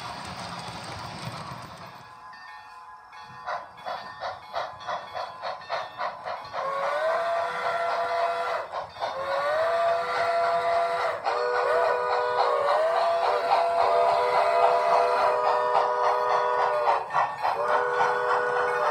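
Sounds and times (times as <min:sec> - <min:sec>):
model steam locomotive exhaust chuffs: 0:00.0 - 0:18.9.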